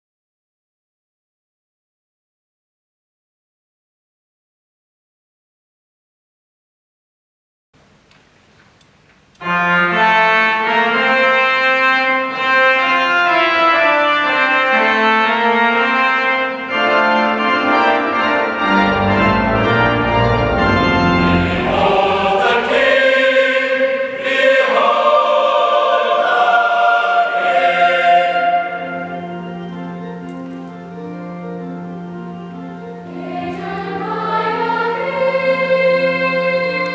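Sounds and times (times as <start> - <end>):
pipe organ chords: 9.3 - 36.9.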